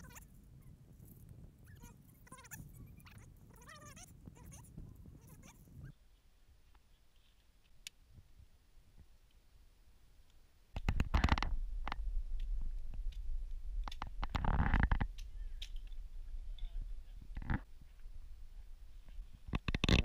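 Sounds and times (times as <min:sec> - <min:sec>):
low rumbling microphone noise: 0:10.7 - 0:20.0.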